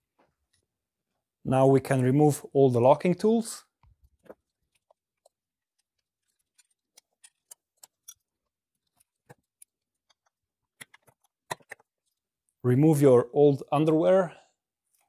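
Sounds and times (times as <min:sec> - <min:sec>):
faint metallic clicks and taps: 0:03.8 - 0:12.2.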